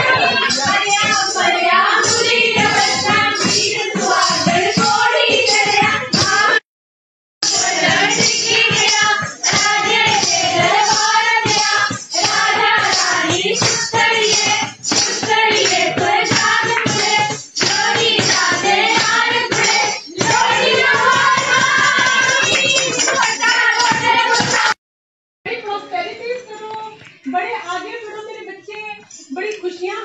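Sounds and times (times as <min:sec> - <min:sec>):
voices singing folk song: 0:00.0 - 0:06.6, 0:07.4 - 0:24.8
percussion: 0:00.0 - 0:06.7, 0:07.4 - 0:24.8, 0:25.5 - 0:30.0.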